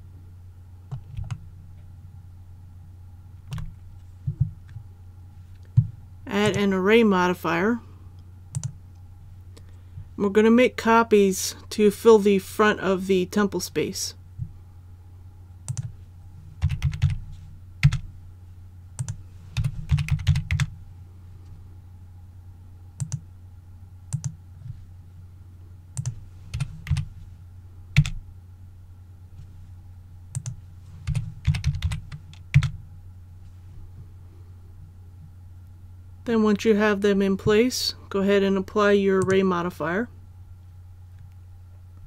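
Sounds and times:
steady low hum: 0.0 - 42.0
keyboard keystrokes: 24.1 - 24.4.

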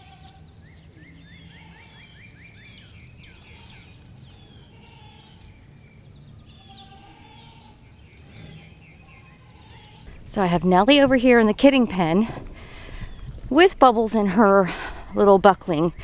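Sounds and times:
small birds singing and chirping: 0.0 - 16.0
low background rumble: 10.0 - 16.0.

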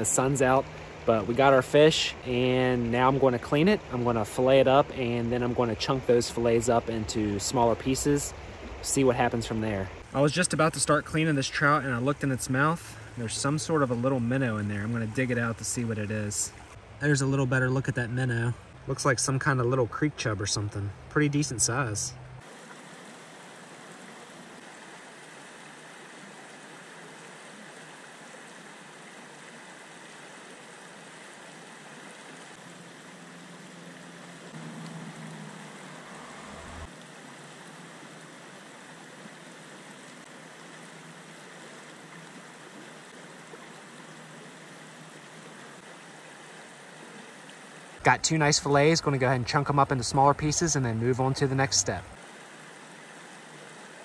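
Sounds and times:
creek water flowing: 0.0 - 54.0.

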